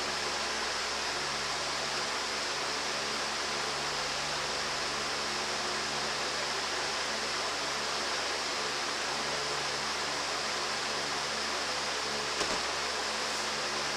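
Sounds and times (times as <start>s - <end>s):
steady hiss: 0.0s - 13.9s.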